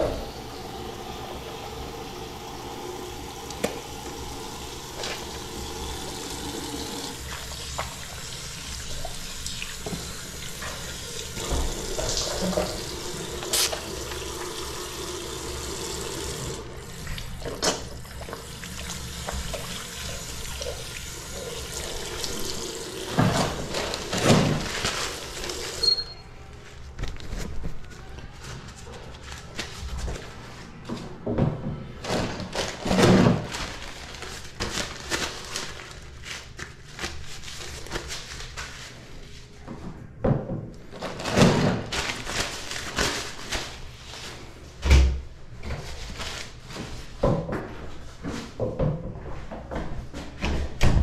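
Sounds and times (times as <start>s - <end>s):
tap water running into sink: 0.0s - 25.9s.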